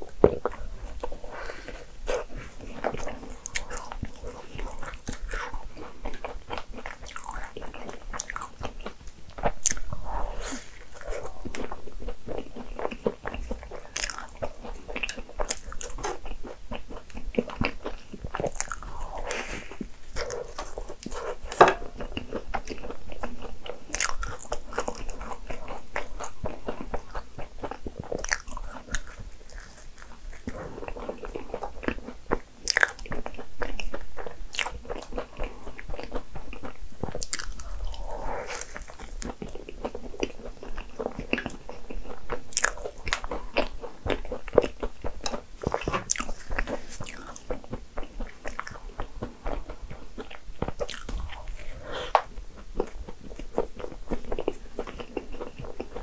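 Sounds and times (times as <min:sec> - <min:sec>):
soft wet chewing: 0:00.0 - 0:56.0
crisp crunches of biting pastry: 0:20.2 - 0:48.8.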